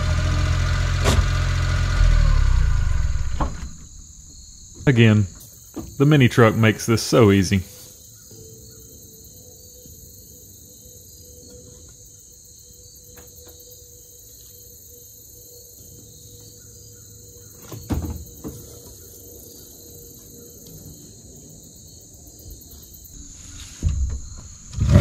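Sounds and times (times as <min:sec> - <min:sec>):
crickets chirping: 0:01.3 - 0:25.0
heavy thump: 0:02.3 - 0:05.2, 0:23.2 - 0:25.0
sharp knock: 0:03.0 - 0:04.1.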